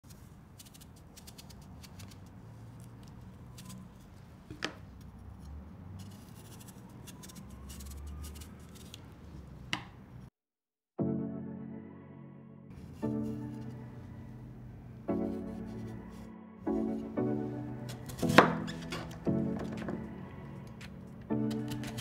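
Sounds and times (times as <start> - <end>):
knife scraping radish peel: 0.1 - 4.2, 5.9 - 9.0, 17.9 - 19.3, 21.4 - 22.0.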